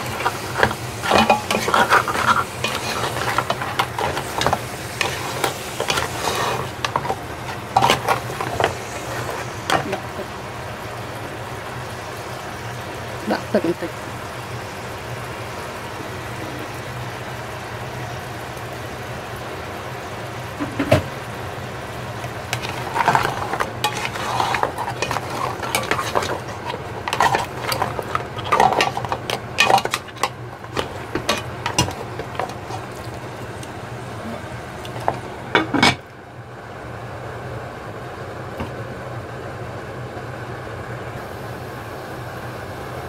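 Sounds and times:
shells clattering in a pot: 0.0s - 10.2s, 22.5s - 33.6s
light sizzling: 0.0s - 36.1s
background hum: 0.0s - 43.0s.

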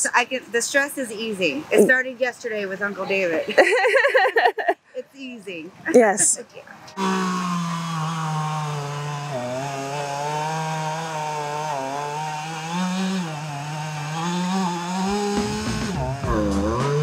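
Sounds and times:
chainsaw cutting wood: 7.0s - 17.0s.

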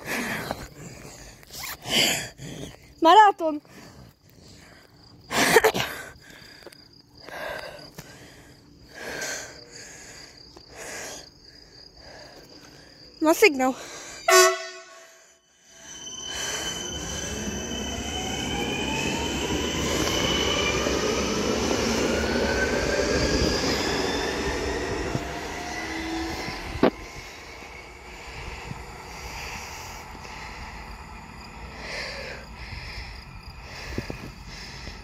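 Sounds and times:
electric train motors whining: 15.6s - 35.0s
wheels rumbling on rail: 15.7s - 35.0s.

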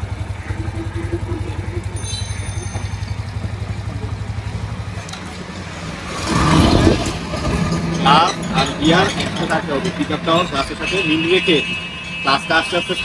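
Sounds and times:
motorcycle engine idling: 0.0s - 6.2s.

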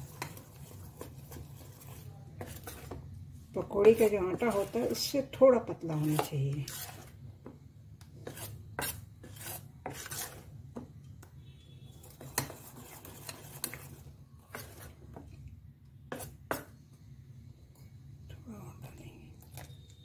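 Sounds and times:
spoon scraping metal bowl: 0.0s - 7.2s, 8.2s - 10.9s, 11.9s - 15.3s, 16.1s - 16.8s.

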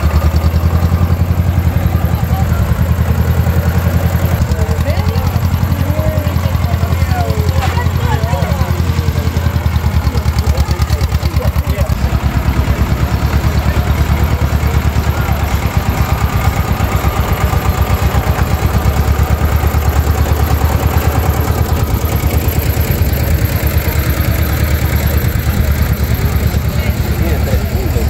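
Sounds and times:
tractor engine running slowly: 0.0s - 28.0s.

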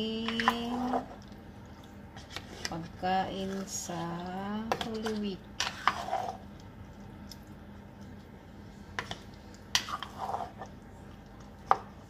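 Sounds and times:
faint steady hum: 0.0s - 12.0s
spatula stirring thick liquid in pot: 4.8s - 6.5s, 9.0s - 10.8s.

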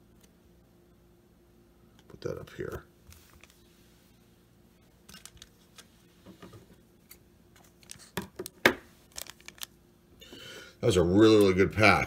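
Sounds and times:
foil pack crinkling: 9.0s - 9.8s.

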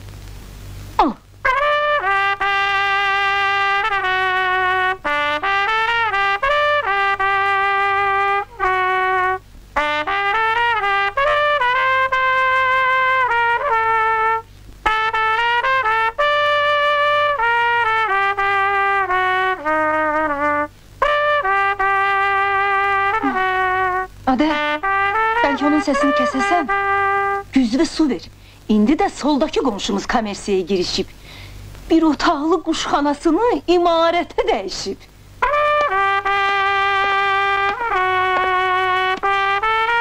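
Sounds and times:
trumpet playing slow melody: 1.4s - 27.6s, 35.2s - 40.0s.

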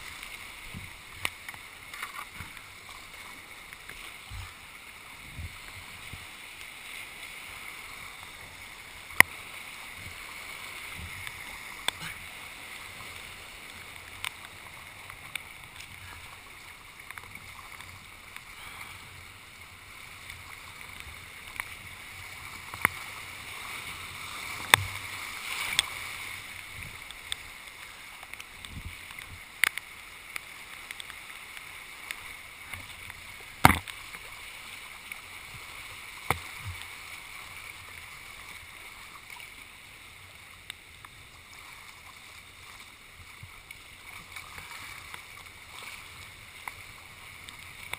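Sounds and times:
knocks and splashes: 10.8s - 12.2s, 24.5s - 26.1s, 32.6s - 34.2s, 36.2s - 36.8s.

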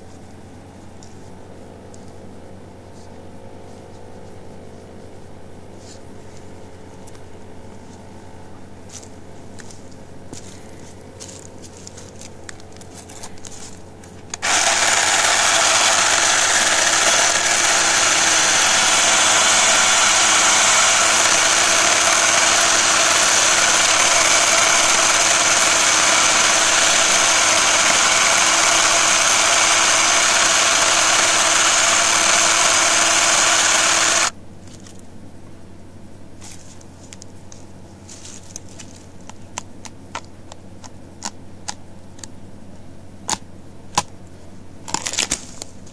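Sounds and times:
chainsaw cutting tree trunk: 14.4s - 34.4s.

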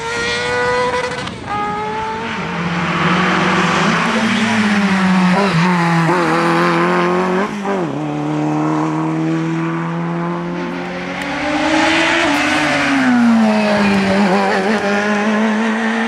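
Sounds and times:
race car engine at high revs: 0.0s - 16.0s.

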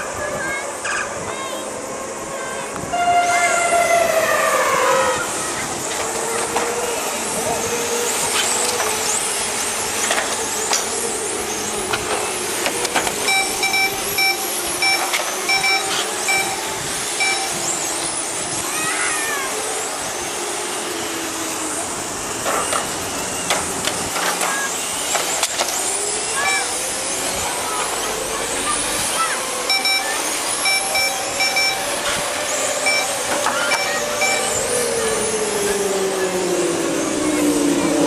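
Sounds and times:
radio-control car motor whine: 4.0s - 38.0s
electronic beep: 13.2s - 16.6s, 17.2s - 17.6s, 29.7s - 31.9s, 32.8s - 33.2s, 33.8s - 34.6s.

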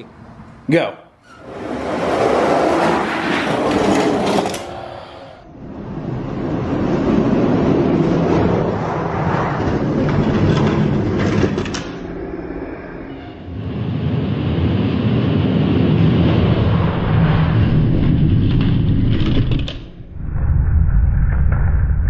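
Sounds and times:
toy trucks rolling on plastic track: 3.4s - 4.8s, 9.7s - 12.0s.

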